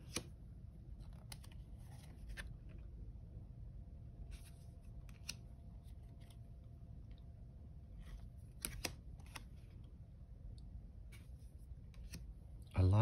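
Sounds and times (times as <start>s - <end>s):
cards clicking: 0.0s - 0.3s, 5.0s - 5.4s, 8.5s - 9.5s
cards rustling: 0.0s - 0.3s, 1.0s - 2.8s, 4.3s - 6.4s, 8.0s - 9.8s, 11.1s - 12.3s.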